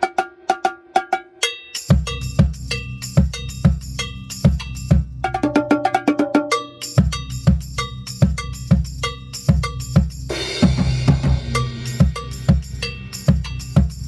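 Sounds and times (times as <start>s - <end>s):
sharp high percussion strikes: 0.0s - 14.0s
ringing cymbal wash: 6.6s - 14.0s
drum and tom-tom strokes: 6.9s - 14.0s.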